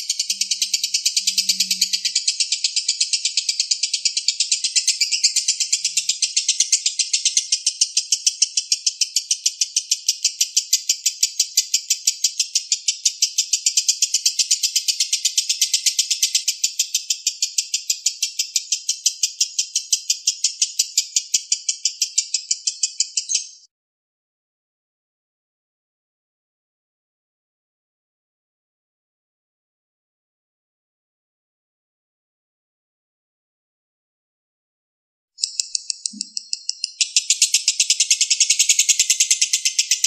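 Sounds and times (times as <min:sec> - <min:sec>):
lovebird chattering trill: 0:00.0 - 0:23.7, 0:35.4 - 0:40.0.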